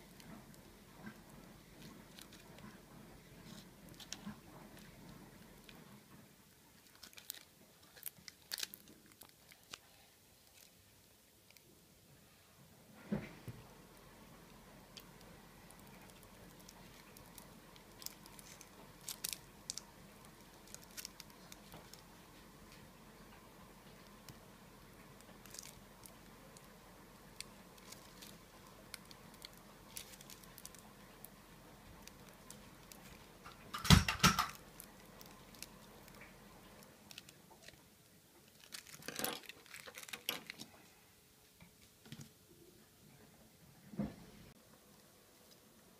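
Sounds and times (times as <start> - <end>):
plastic film crinkling: 0.0 - 6.0, 6.7 - 10.8, 14.9 - 22.9, 23.8 - 40.8.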